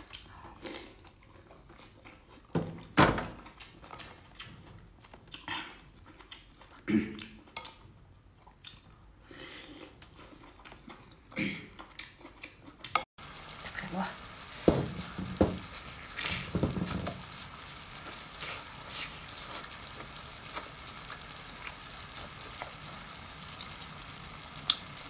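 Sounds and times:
chewing shellfish: 0.0 - 2.5, 3.4 - 13.5.

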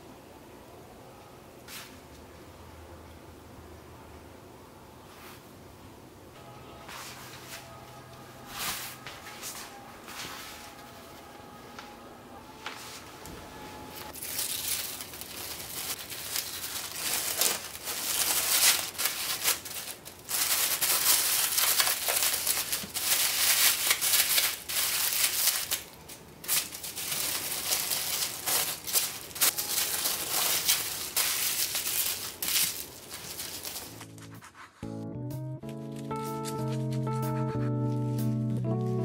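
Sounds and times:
wrapping crinkling and rustling: 14.0 - 34.6, 35.6 - 37.1.

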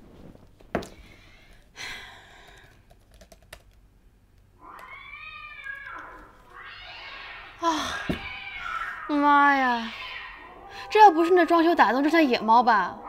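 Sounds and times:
laptop keyboard typing: 2.4 - 3.8
cat yowling: 4.6 - 13.0.

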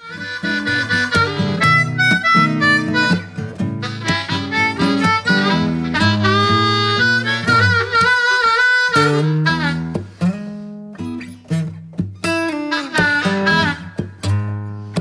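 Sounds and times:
harmonica bending notes: 0.0 - 15.0
plucked acoustic guitar: 0.0 - 15.0.

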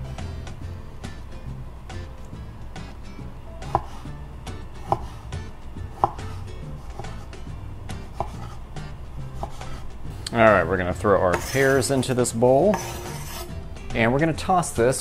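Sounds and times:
background music: 0.0 - 15.0
knife chopping on wooden board: 3.6 - 4.1, 4.8 - 8.6, 9.4 - 9.8, 11.3 - 11.8, 12.7 - 13.5.

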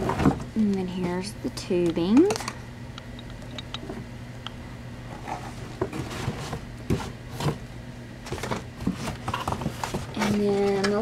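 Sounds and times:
plastic hose rustling in a box: 8.2 - 10.8.

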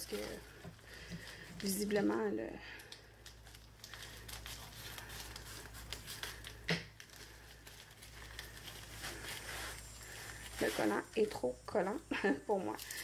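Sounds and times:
scissors cutting plastic wrapping: 0.0 - 0.6, 2.8 - 11.0
plastic crinkling: 0.0 - 13.0.

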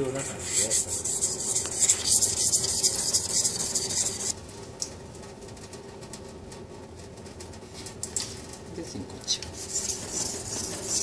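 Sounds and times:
knife blade scraping on whetstone: 9.7 - 11.0.

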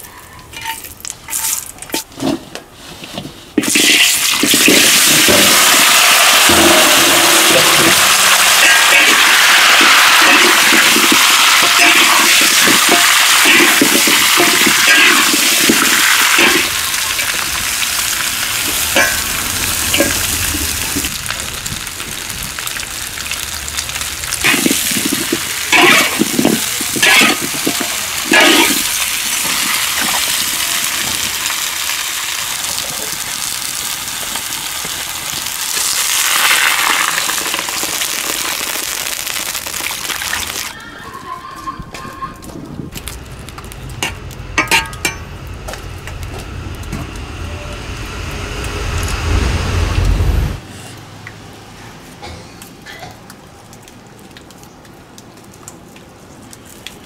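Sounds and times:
metal spatula scraping wok: 0.5 - 3.0, 18.0 - 21.1, 24.4 - 31.1
food sizzling in a wok: 3.6 - 40.8
water hissing in hot wok: 3.6 - 40.8.

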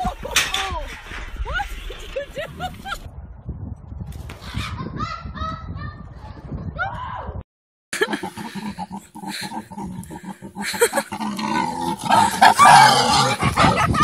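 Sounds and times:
pig grunting: 8.0 - 14.0.

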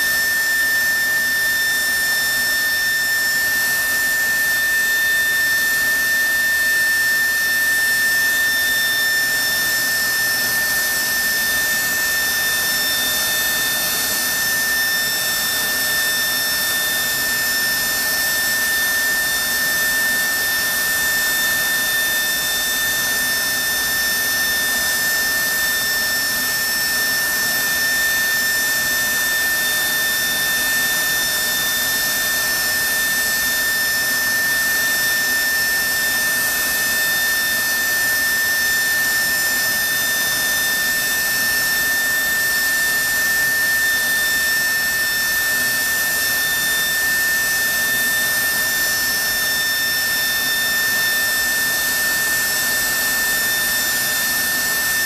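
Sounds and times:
jet engine high-pitched whine: 0.0 - 55.0.

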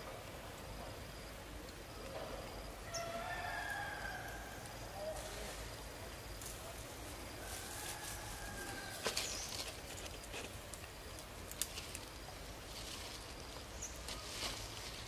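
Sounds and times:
distant rooster crowing: 2.8 - 5.1, 7.3 - 9.2.

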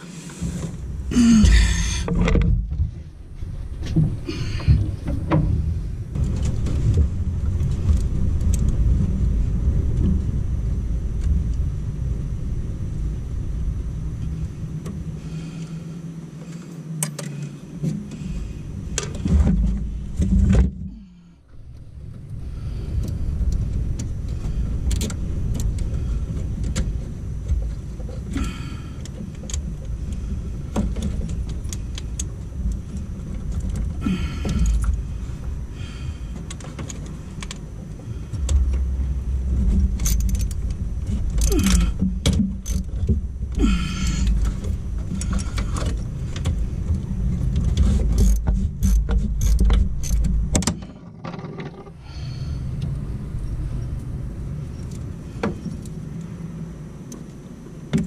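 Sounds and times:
steady low rumble: 0.0 - 58.0
metallic clinks and rattles of tools: 39.6 - 42.0, 42.6 - 43.0, 48.1 - 50.4.

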